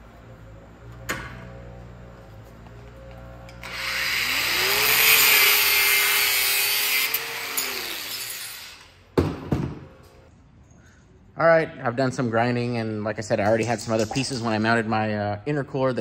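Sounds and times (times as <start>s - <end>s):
angle grinder grinding metal: 3.5s - 8.9s.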